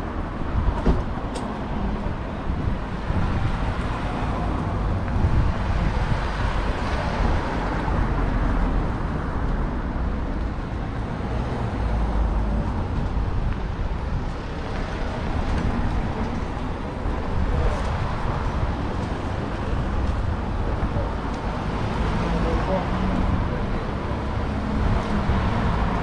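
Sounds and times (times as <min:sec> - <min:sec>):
road traffic rumble: 0:00.0 - 0:26.0.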